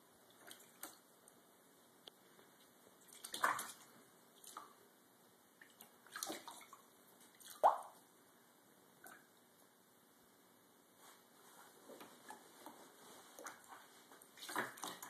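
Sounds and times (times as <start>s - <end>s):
cat paws splashing in water: 3.0s - 4.8s, 5.6s - 8.0s, 12.1s - 15.0s.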